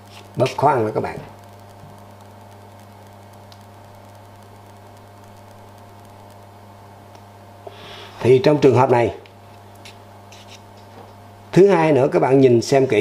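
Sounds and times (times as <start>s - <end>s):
electrical mains hum: 0.0s - 13.0s
faint hiss: 7.6s - 8.5s.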